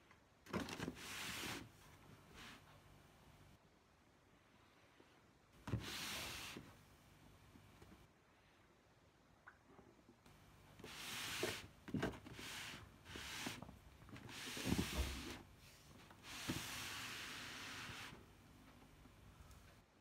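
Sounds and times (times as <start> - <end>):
hand rubbing and rustling: 10.7 - 19.8.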